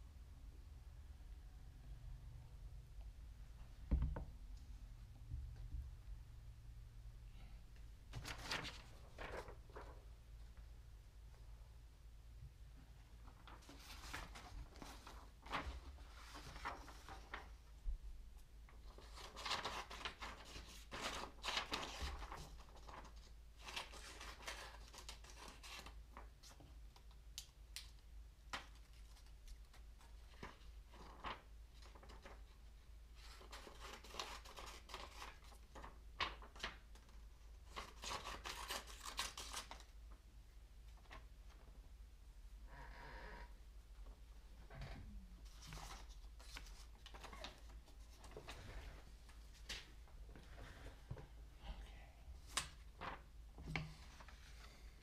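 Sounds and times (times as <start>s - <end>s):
faint low hum: 0.0s - 23.6s, 39.1s - 55.0s.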